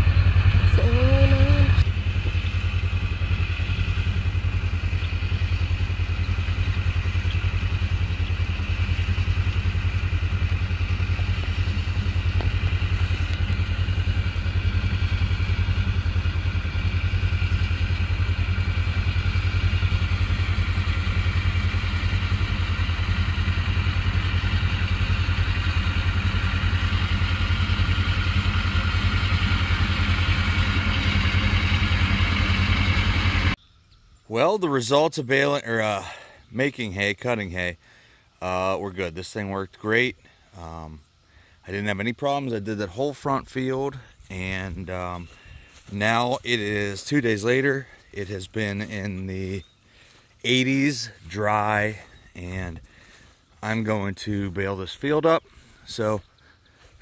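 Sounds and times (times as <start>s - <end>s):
cutting machinery clatter: 0.0s - 33.6s
tractor diesel engine running: 0.0s - 33.6s, 34.4s - 57.0s.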